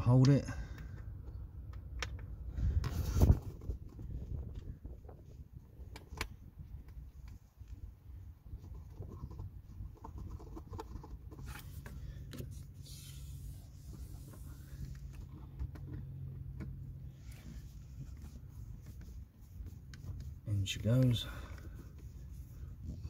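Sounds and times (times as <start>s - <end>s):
clicks and taps of screw and plastic: 0.2s - 2.4s, 5.8s - 7.4s, 14.8s - 16.8s
wind rumble on microphone: 2.3s - 11.5s.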